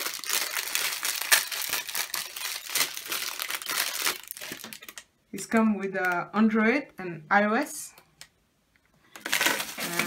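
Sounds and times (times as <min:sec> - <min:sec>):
plastic bag crinkling: 0:00.0 - 0:05.1, 0:09.1 - 0:10.0.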